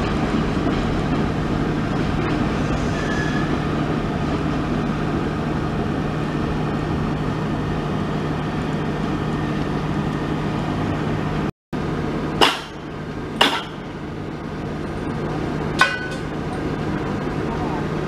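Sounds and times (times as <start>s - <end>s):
sharp metallic clanks: 12.4s - 13.9s, 15.8s - 16.7s.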